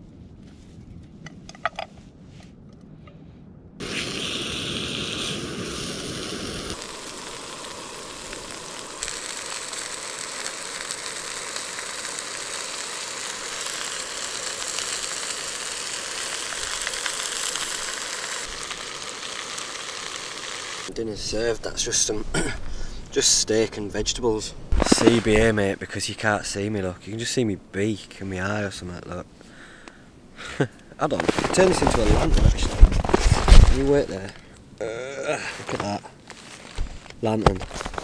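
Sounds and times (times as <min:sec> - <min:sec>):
food sizzling in a pan: 0:03.8 - 0:20.9
wrapper crinkling: 0:24.8 - 0:25.4, 0:31.1 - 0:34.3, 0:35.5 - 0:38.0.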